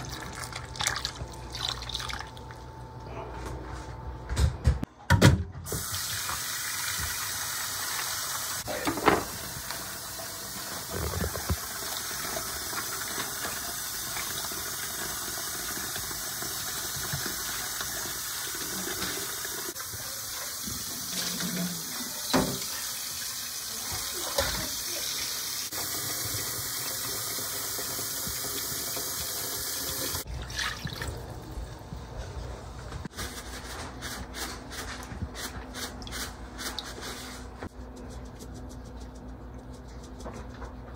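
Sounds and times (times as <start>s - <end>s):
tap water running into bowl: 5.7s - 20.0s.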